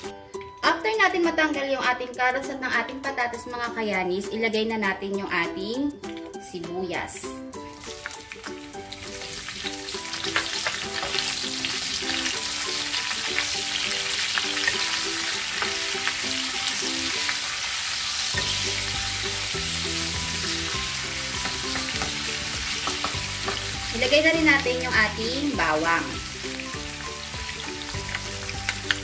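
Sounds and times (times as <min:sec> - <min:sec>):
onions sizzling in oil: 0:07.5 - 0:29.0
spatula scraping and tapping pan: 0:21.4 - 0:23.7.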